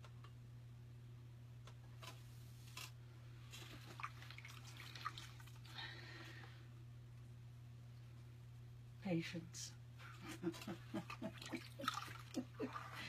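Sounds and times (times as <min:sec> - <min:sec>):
low steady hum: 0:00.0 - 0:13.0
water splashing and dripping: 0:03.9 - 0:05.6.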